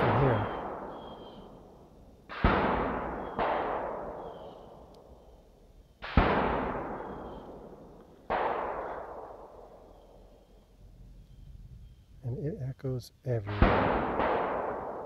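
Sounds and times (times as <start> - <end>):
gunshots echoing: 0.0 - 5.3, 6.0 - 10.2, 13.5 - 15.0.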